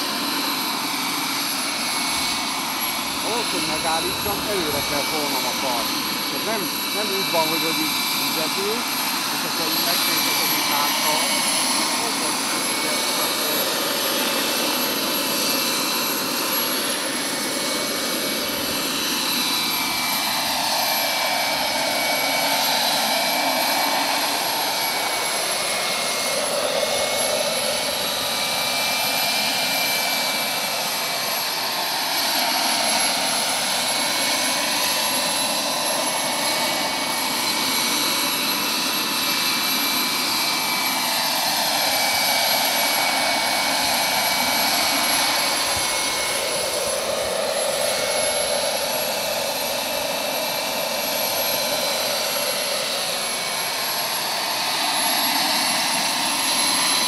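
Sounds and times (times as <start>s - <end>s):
rotor blades rushing: 0.0s - 28.8s, 30.8s - 57.0s
gas turbine high whine: 0.0s - 57.0s.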